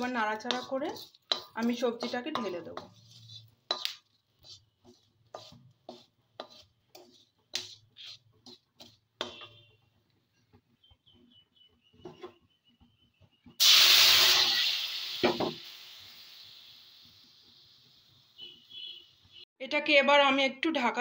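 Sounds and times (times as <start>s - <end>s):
wooden spatula scraping spices: 0.0s - 13.4s
loud sizzle: 13.6s - 18.4s.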